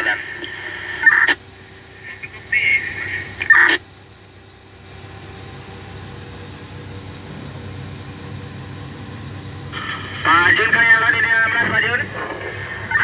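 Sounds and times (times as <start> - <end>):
two-way radio bursts: 0.0 - 1.4, 2.0 - 3.8, 9.8 - 13.0
diesel engine running: 0.0 - 13.0
radio squelch click: 0.4 - 1.4.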